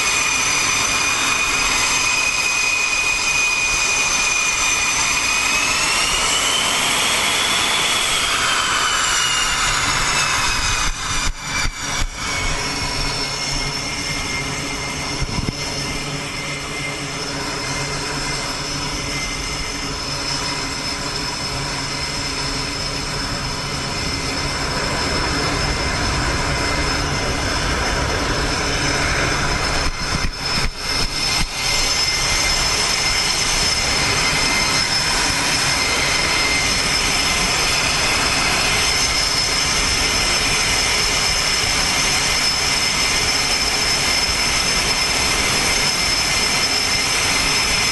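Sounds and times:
jet engines whining: 0.0 - 47.9.

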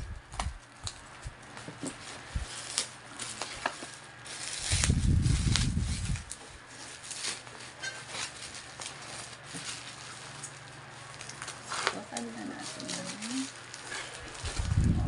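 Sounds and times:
bubble wrap crinkling: 0.0 - 15.0
low handling rumble: 14.2 - 15.0.

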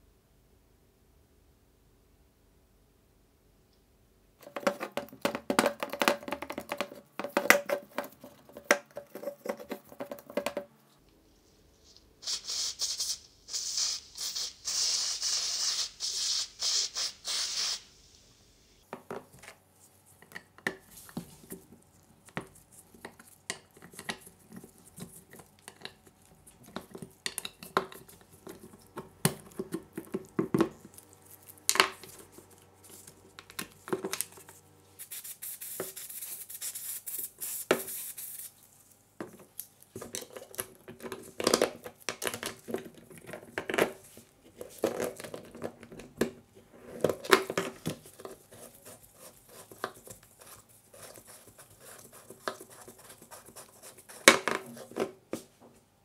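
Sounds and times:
aerosol spray can hissing: 12.2 - 18.3, 35.0 - 38.5.

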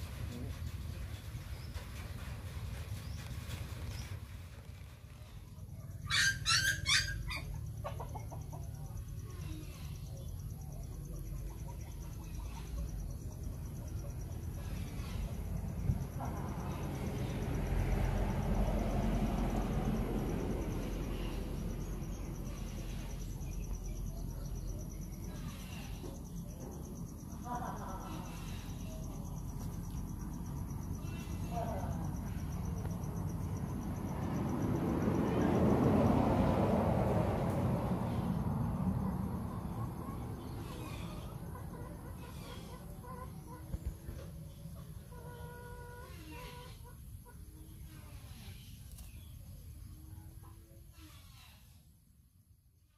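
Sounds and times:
insects chirping trill: 5.7 - 40.9
chicken squawking: 6.0 - 8.1
puppy whimper: 6.1 - 7.5
chicken clucking: 7.5 - 9.0, 39.7 - 47.6.

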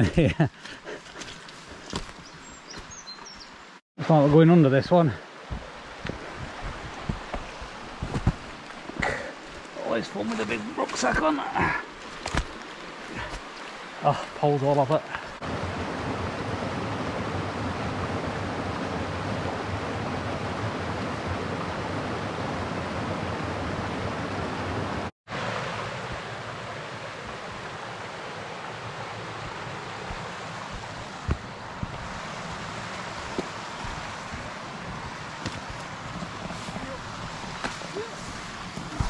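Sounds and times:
fast-flowing stream: 0.6 - 39.0.

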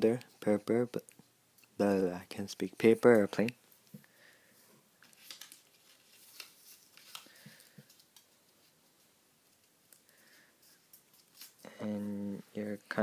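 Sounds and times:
paper rustling and crinkling: 5.0 - 11.7.

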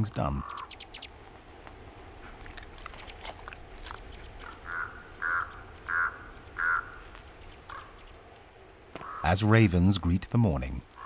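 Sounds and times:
soft crunches: 1.2 - 4.8
raven hoarse calls: 2.2 - 8.0, 8.9 - 9.4.

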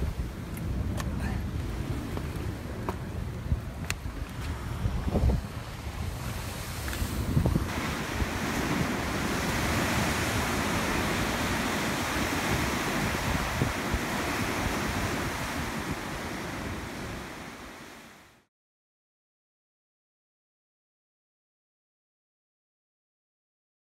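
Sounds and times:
wind on microphone: 0.0 - 18.2
surf breaking on rocks: 0.9 - 18.1.

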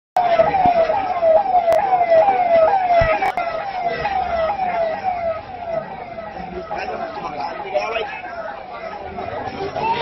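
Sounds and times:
siren falling tone: 0.2 - 7.0.

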